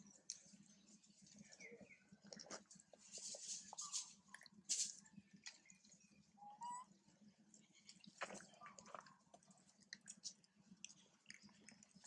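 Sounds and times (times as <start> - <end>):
faint bird chirps: 0.0 - 2.3, 5.1 - 7.0
crackles in dry leaf litter: 0.3 - 5.8
monkey chewing food: 7.4 - 12.0.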